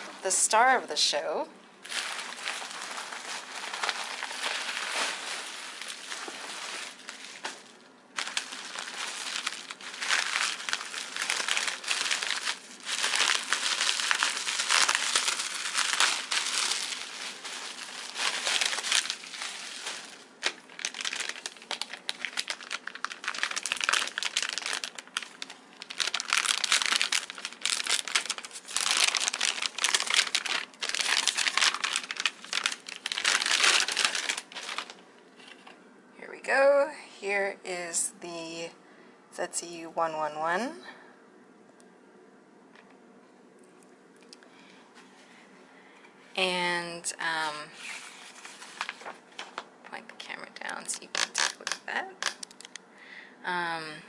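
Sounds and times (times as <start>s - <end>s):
bubble wrap and bag crinkling: 1.8s - 35.6s, 47.4s - 52.8s.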